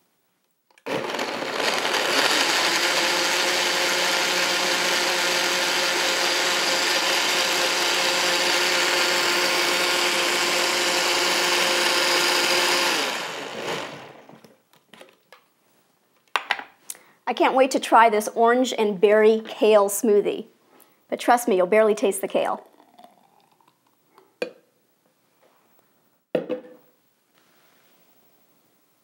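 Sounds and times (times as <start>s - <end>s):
blender motor running: 0.8s - 14.3s.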